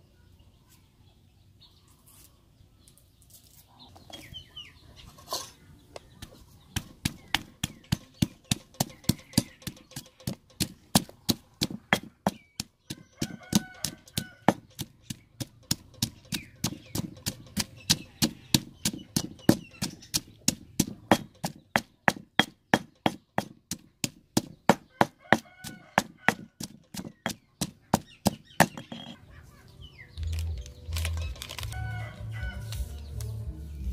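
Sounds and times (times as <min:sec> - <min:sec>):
pestle pounding in stone mortar: 0:06.2 - 0:29.2.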